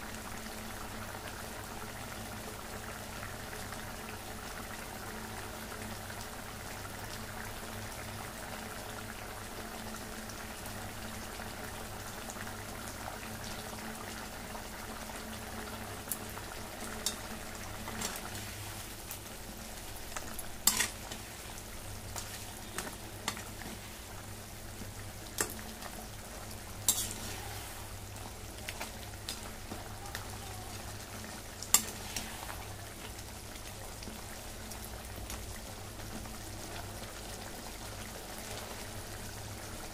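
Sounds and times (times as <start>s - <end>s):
curry bubbling and sizzling: 0.0s - 39.9s
metal spatula scraping pan: 20.7s - 21.2s, 26.9s - 27.8s.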